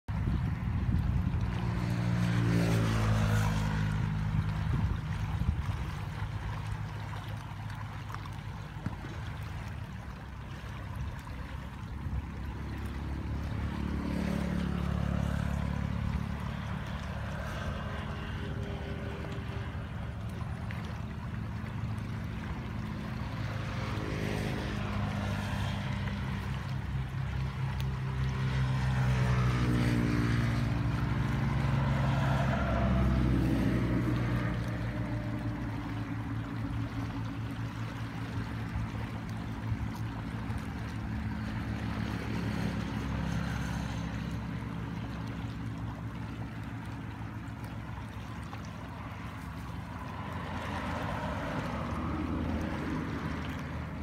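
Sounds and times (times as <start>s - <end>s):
floodwater rushing: 0.1s - 54.0s
motor droning: 0.2s - 54.0s.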